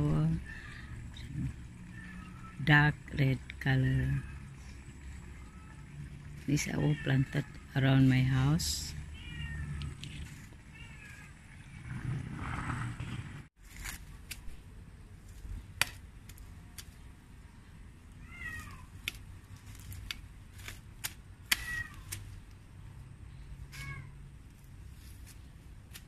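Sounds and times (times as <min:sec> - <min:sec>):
cat meowing: 0:09.0 - 0:10.0, 0:10.7 - 0:11.8, 0:18.2 - 0:18.9, 0:21.5 - 0:22.2, 0:23.7 - 0:24.2
twigs snapping in dry grass: 0:19.0 - 0:22.6.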